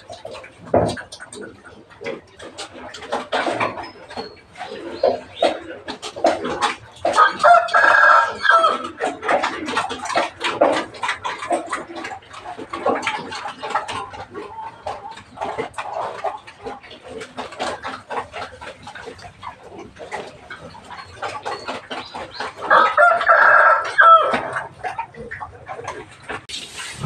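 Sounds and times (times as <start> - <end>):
chickens clucking: 0.0 - 27.0
rooster crowing: 7.2 - 8.8, 22.7 - 24.5.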